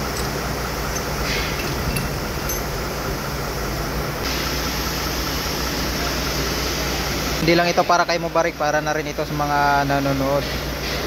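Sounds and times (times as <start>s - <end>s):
faint metallic clinks: 0.0s - 2.8s
steady mechanical hum: 0.0s - 11.0s.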